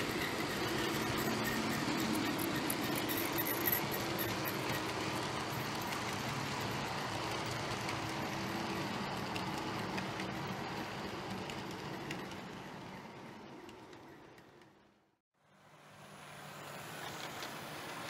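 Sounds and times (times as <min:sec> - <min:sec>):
model train wheels rumbling on rail: 0:00.0 - 0:15.0, 0:16.3 - 0:18.0.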